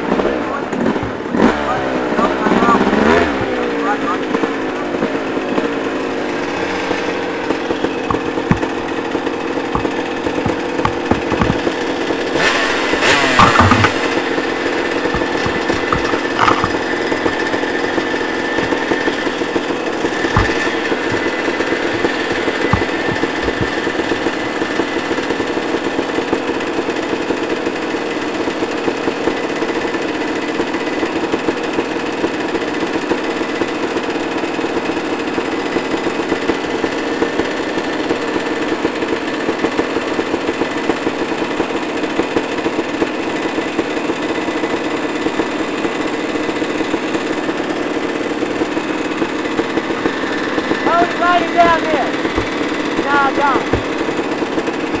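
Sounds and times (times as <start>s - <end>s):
dirt bike engine running: 0.0s - 55.0s
knocks: 8.0s - 11.8s, 13.3s - 14.2s, 15.1s - 17.5s, 20.1s - 24.9s, 52.2s - 52.7s, 53.6s - 54.1s.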